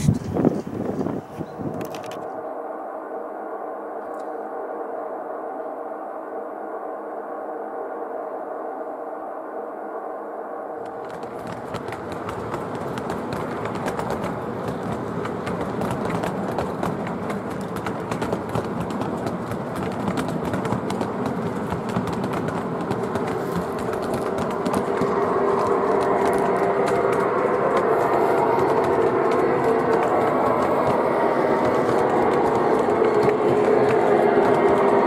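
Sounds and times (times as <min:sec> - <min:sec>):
model train wheels clicking: 0:10.8 - 0:35.0.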